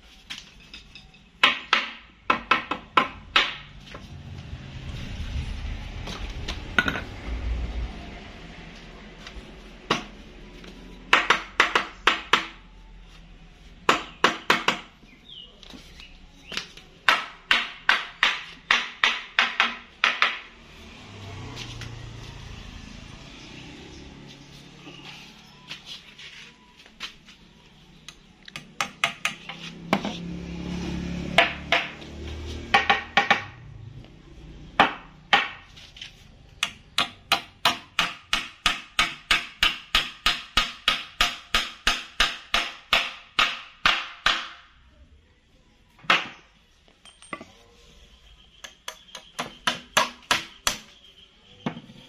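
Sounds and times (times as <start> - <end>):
low rumbling noise: 4.0 - 10.6.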